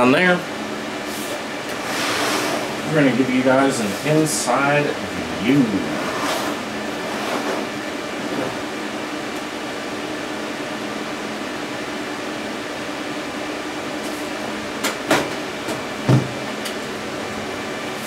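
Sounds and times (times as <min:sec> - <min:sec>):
fan-like hum: 0:00.0 - 0:18.0
steady low tones: 0:02.8 - 0:07.1.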